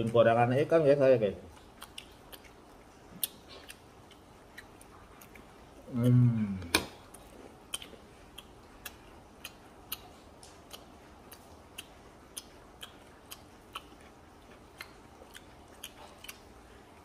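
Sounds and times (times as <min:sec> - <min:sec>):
wet mouth chewing clicks: 0:01.5 - 0:17.0.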